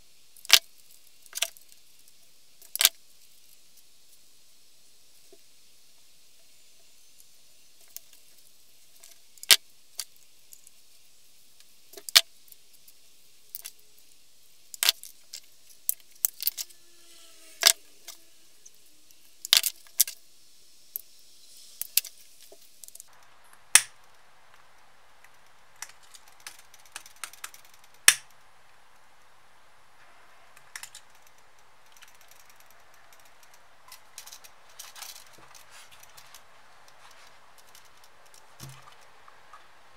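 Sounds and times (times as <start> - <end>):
sharp clicks and metallic clinks: 25.2 - 28.4, 30.6 - 36.4.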